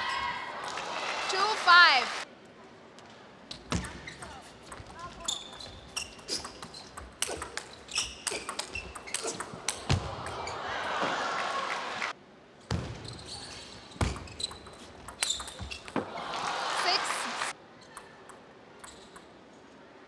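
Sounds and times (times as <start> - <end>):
shoe soles squeaking: 3.5 - 9.9, 13.0 - 16.0, 18.8 - 19.3
ping pong ball clicking: 18.0 - 19.3.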